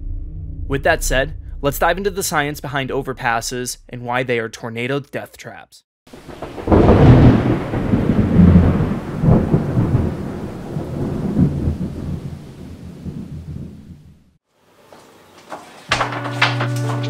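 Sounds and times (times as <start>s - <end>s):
thunder rumbling: 0.0s - 3.9s, 6.1s - 14.4s.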